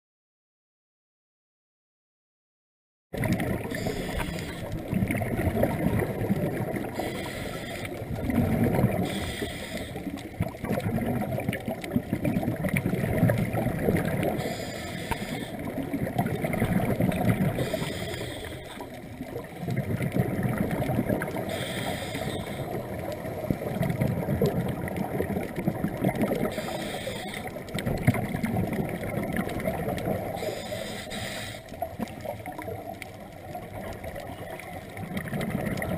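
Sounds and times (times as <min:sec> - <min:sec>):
bubbling exhalations underwater: 0:03.2 - 0:09.2, 0:10.0 - 0:14.6, 0:15.2 - 0:26.7, 0:27.5 - 0:30.5, 0:33.6 - 0:35.9
regulator hissing inhalations: 0:03.7 - 0:04.8, 0:07.0 - 0:08.0, 0:09.0 - 0:10.2, 0:14.4 - 0:15.6, 0:17.6 - 0:19.0, 0:21.4 - 0:22.8, 0:26.5 - 0:27.6, 0:30.4 - 0:31.8.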